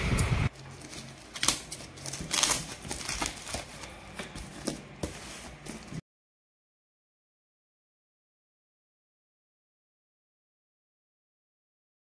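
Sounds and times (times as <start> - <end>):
scissors cutting plastic: 0.5 - 3.9
plastic crinkling: 0.5 - 6.0.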